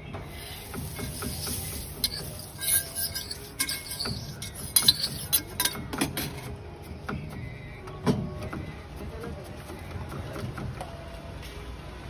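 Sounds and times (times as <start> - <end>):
metal spatula scraping iron griddle: 0.3 - 6.5.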